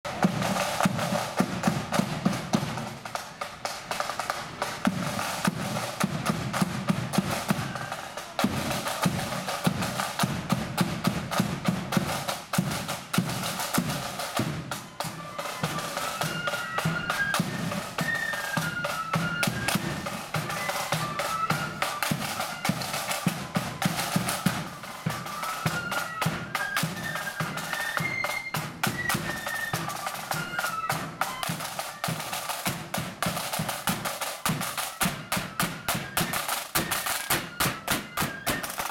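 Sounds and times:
side drums marching rhythm: 0.0 - 38.9.

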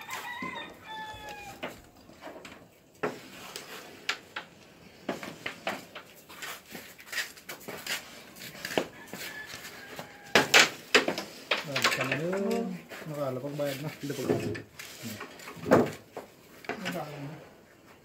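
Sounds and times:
discs clacking against wood: 10.0 - 12.7.

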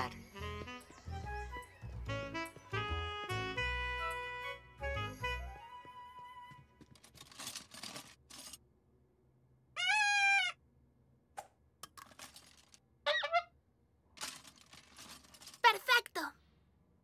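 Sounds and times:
toys rustling: 6.8 - 8.6, 11.9 - 12.9, 14.1 - 16.3
shrill toy whistle toot: 9.8 - 10.6.

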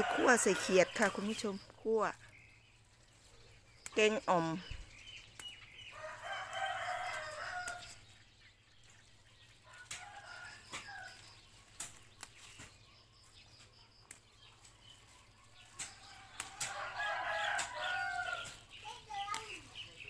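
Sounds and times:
rooster crowing: 0.0 - 1.2, 5.9 - 7.9, 16.2 - 18.5.

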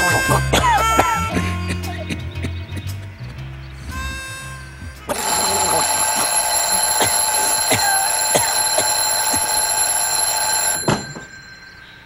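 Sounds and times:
alarm clock bell ringing: 5.1 - 12.0.

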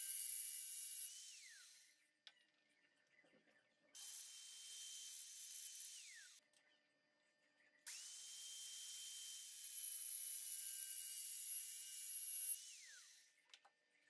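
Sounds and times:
angle grinder cutting metal rod: 4.0 - 6.4, 7.9 - 13.3.

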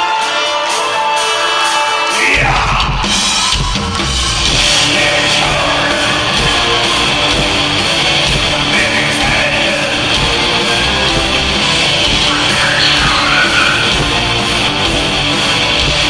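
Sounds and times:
heavy metal band playing: 0.0 - 16.0.

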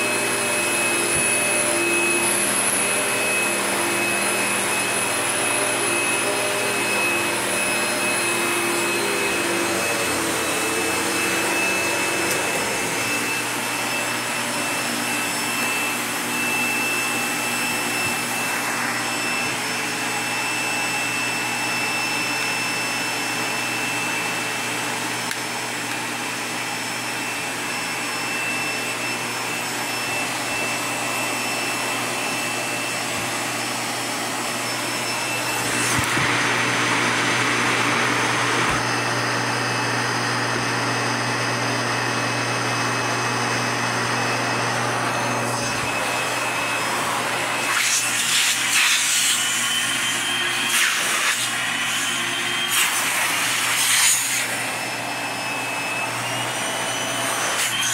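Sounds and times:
vacuum cleaner on carpet: 0.0 - 57.9.

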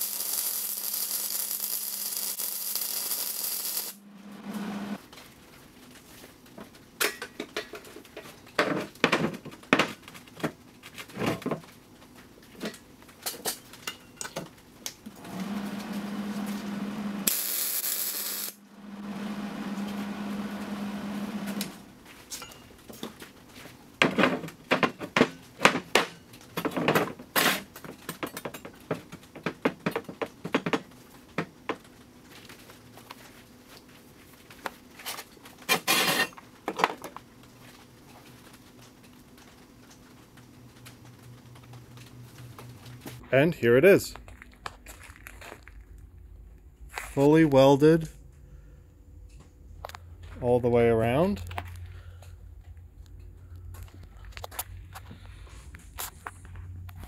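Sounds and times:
welding arc crackling and hissing: 0.0 - 5.0, 15.2 - 21.8
steady hum: 1.1 - 5.0, 15.0 - 22.7.

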